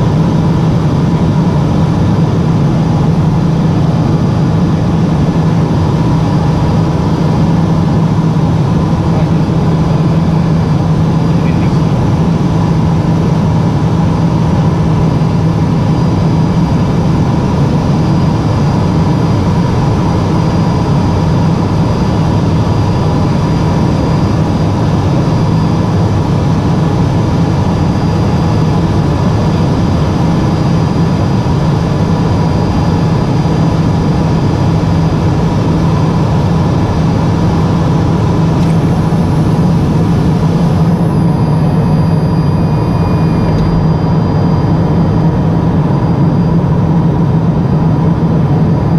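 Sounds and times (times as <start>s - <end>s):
turboprop cabin drone: 0.0s - 48.9s
faint high tone: 41.3s - 44.9s.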